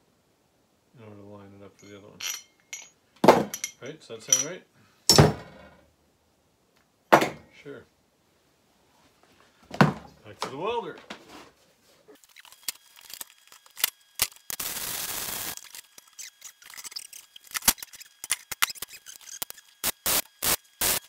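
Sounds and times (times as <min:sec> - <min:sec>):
welding hiss and crackles: 0:12.2 - 0:21.0.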